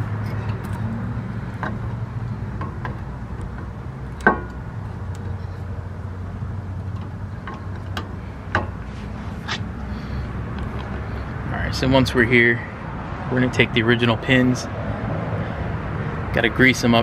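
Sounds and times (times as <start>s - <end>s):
light metallic clicks and knocks: 1.5s - 5.6s, 6.7s - 8.9s.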